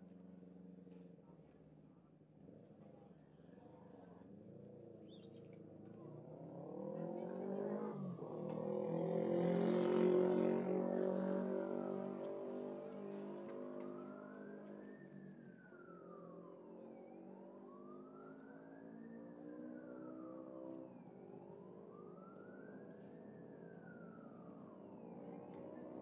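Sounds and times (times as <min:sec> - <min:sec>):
siren wailing: 0:09.0 - 0:26.0.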